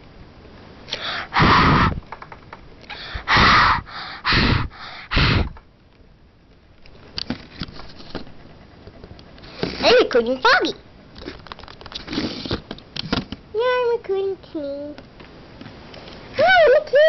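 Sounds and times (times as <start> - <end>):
girl blowing into microphone: 0.9 - 2.0, 2.9 - 5.6.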